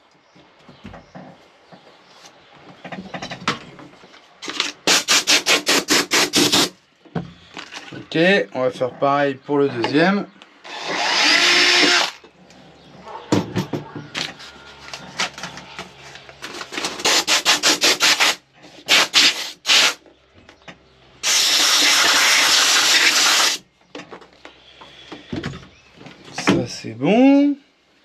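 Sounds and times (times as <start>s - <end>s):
cordless drill running: 10.7s - 12.2s.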